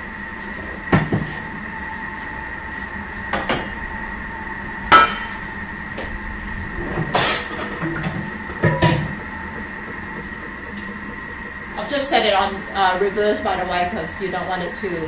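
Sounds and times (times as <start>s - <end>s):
kitchen appliance humming: 0.0s - 15.0s.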